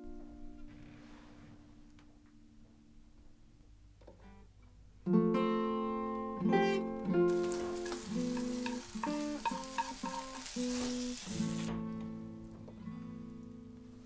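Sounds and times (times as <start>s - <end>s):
plucked acoustic guitar music: 4.2s - 14.0s
food sizzling in a pan: 7.3s - 11.8s.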